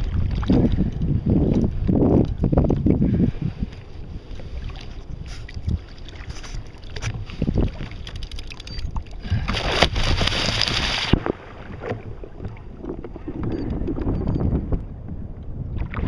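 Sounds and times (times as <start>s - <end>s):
wind rumbling on microphone: 0.0s - 16.0s
shark thrashing splash: 9.5s - 11.4s.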